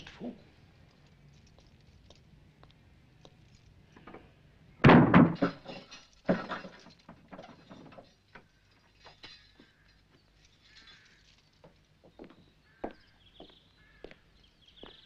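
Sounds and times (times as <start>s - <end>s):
heavy wooden door thuds: 4.8s - 5.6s.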